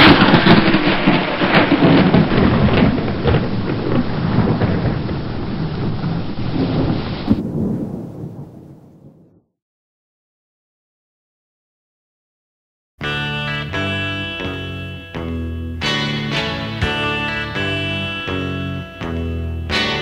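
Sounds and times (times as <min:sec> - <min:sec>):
heavy rain: 0:00.0 - 0:09.3, 0:13.2 - 0:20.0
sharp thunder cracks: 0:00.0 - 0:09.5
thunder rumbling: 0:00.0 - 0:09.5.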